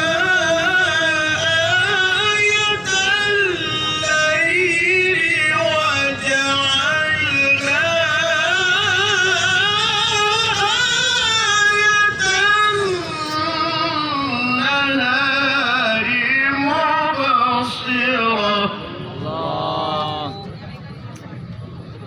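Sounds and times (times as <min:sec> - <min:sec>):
man chanting recitation over loudspeaker: 0:00.0 - 0:20.5.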